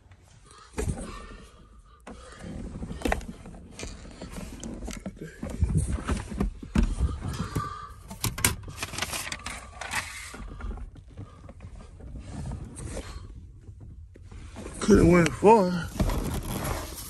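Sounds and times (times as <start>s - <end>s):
objects clicking and knocking: 3.0s - 10.7s
papers and plastic bags rustling: 8.1s - 11.4s, 15.6s - 17.0s.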